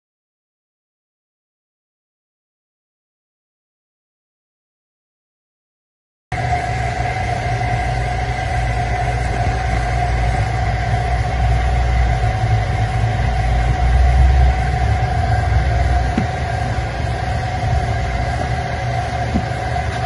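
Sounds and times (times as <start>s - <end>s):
machine rumbling and humming: 6.3s - 20.0s.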